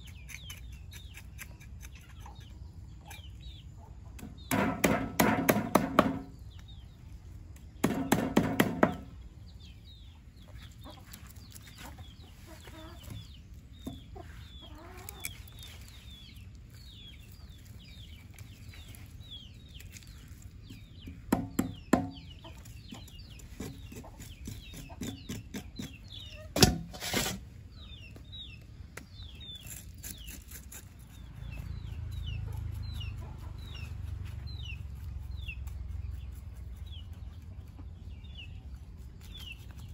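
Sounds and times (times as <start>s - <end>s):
sharp knock: 4.5s - 6.3s, 7.8s - 9.1s.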